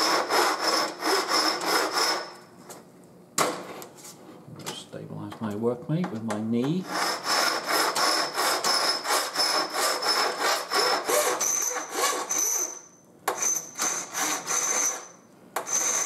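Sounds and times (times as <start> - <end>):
hand file rasping on metal: 0.0 - 2.3, 6.8 - 12.8, 13.4 - 16.0.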